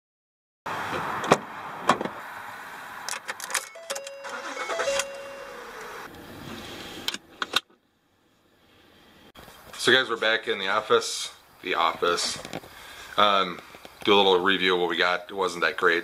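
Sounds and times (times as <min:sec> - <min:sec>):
ignition key clicks: 0:03.1 - 0:06.0
car engine cranking and starting: 0:03.1 - 0:07.6
pitched whine: 0:03.8 - 0:07.2.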